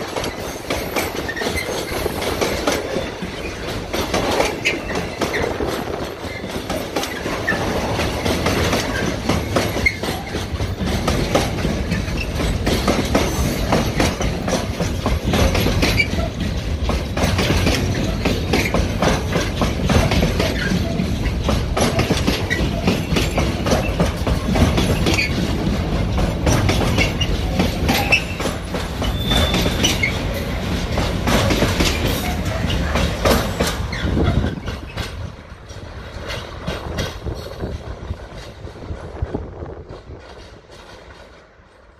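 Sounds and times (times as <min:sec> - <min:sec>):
train wagons clattering: 0:00.0 - 0:41.9
train wheels rumbling on rail: 0:00.0 - 0:41.9
high wheel squeals: 0:00.3 - 0:03.7, 0:26.9 - 0:30.6.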